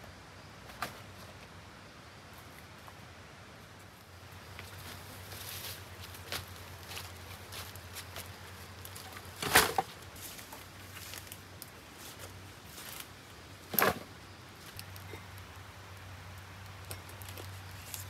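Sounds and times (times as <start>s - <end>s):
dry branches crashing: 5.4s - 11.4s.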